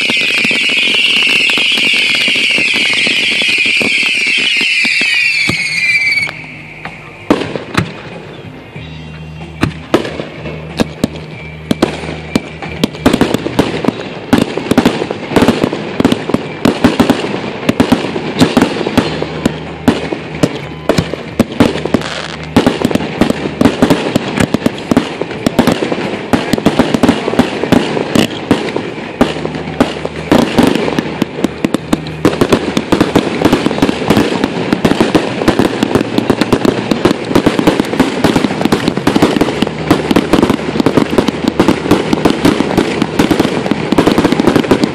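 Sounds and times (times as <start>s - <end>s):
falling firework whistle: 0.0s - 14.0s, 15.4s - 31.0s
firework bangs and crackling: 0.0s - 44.9s.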